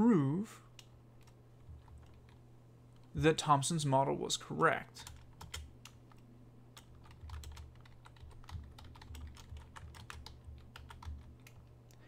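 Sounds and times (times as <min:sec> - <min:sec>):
low steady hum: 0:00.0 - 0:12.0
typing on computer keyboard: 0:00.8 - 0:02.4, 0:05.0 - 0:06.2, 0:06.8 - 0:11.7.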